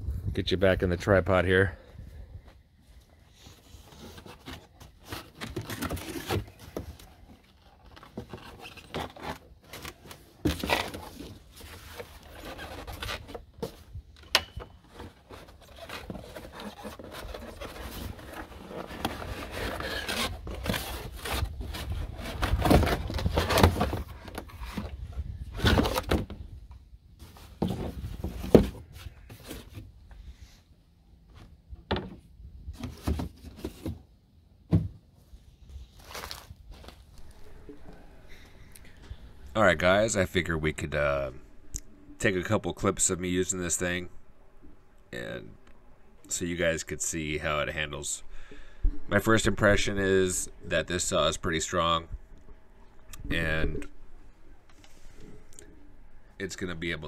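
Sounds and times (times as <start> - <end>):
packaging scraping and knocking: 3.9 - 13.9, 14.6 - 26.4.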